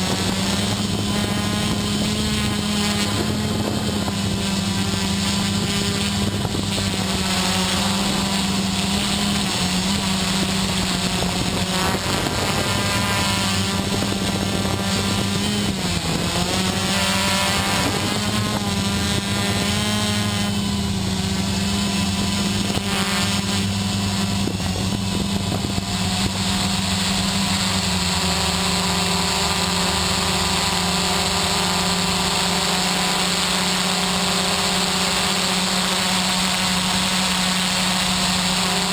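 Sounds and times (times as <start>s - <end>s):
drone propellers buzzing hum: 0.0s - 38.9s.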